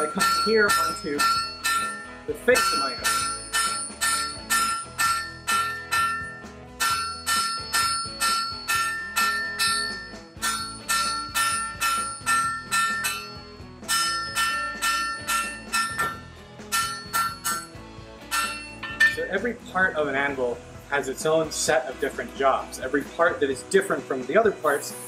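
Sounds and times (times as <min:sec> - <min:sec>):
hammer striking steel on anvil: 0:00.0 - 0:19.5.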